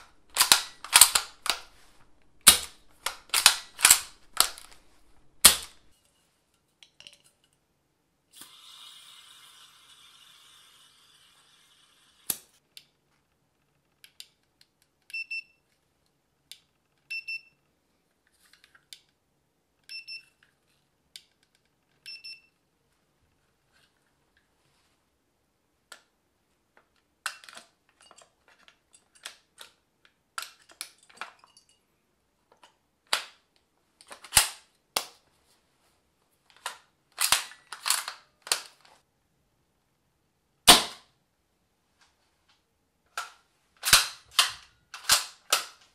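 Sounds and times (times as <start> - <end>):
airsoft rifle shots: 0.0 - 5.9, 40.7 - 41.1, 43.8 - 45.7
magazine seating and bolt clicks: 0.0 - 5.9, 36.6 - 38.8, 43.2 - 45.9.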